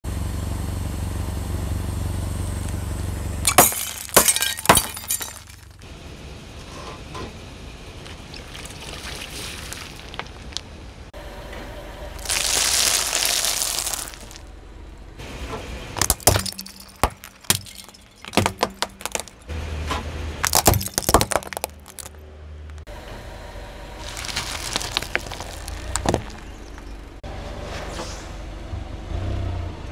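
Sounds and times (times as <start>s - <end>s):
low steady rumble: 0.1s - 29.1s
low engine hum: 0.1s - 29.9s
plastic pieces clattering on asphalt: 3.5s - 5.8s, 8.5s - 10.7s, 12.2s - 14.5s, 16.0s - 19.5s, 20.4s - 22.8s, 24.0s - 27.0s
glass tubes bursting with pops: 12.2s - 14.4s
small crack: 12.2s - 14.4s, 24.0s - 27.0s.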